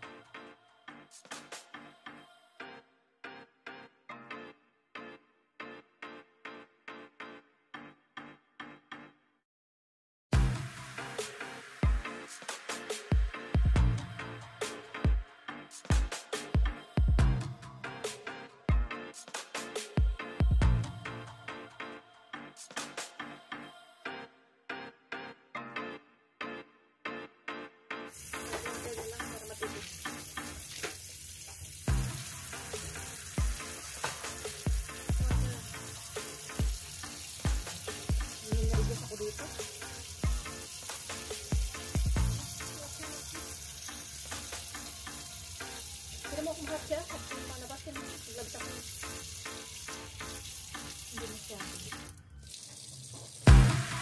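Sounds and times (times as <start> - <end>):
water splashing into a sink: 28.2 - 54.0.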